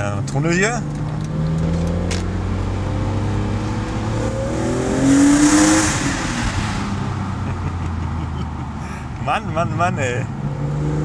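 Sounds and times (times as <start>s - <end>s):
car engine revving from cabin: 1.2s - 6.7s, 10.4s - 11.0s.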